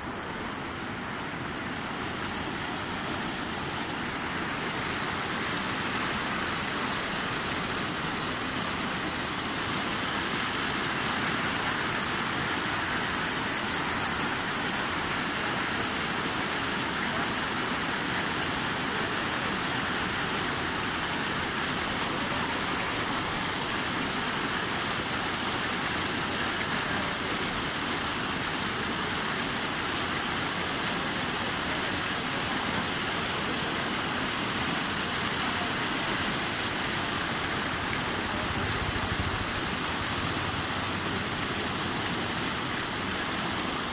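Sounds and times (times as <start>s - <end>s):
water rushing over a ledge: 0.0s - 43.9s.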